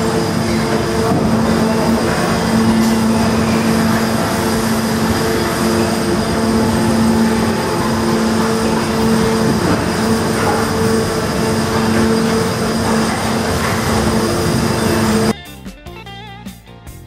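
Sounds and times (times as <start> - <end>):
machine hum: 0.0 - 15.4
machine noise rushing: 0.0 - 15.4.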